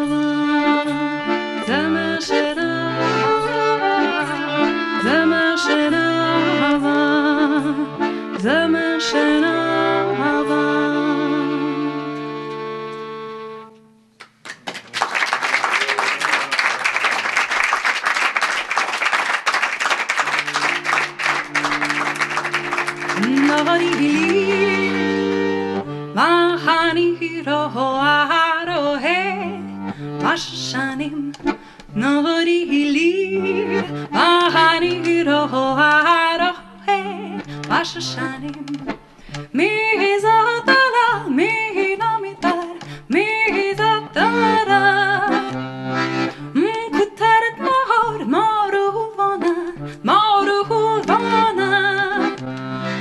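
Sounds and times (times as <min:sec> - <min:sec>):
bowed string instrument: 0:00.0 - 0:13.8, 0:20.4 - 0:31.4, 0:39.5 - 0:46.9
button accordion: 0:00.0 - 0:14.1, 0:19.4 - 0:53.0
woman singing: 0:01.6 - 0:04.4, 0:05.0 - 0:11.8, 0:23.2 - 0:25.2, 0:26.1 - 0:29.6, 0:30.2 - 0:38.9, 0:39.5 - 0:45.5, 0:46.5 - 0:52.4.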